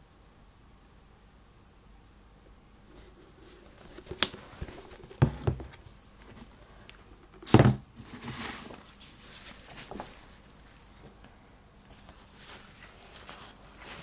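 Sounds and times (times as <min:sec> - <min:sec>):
boots knocking on cardboard box: 0:05.2 - 0:05.8.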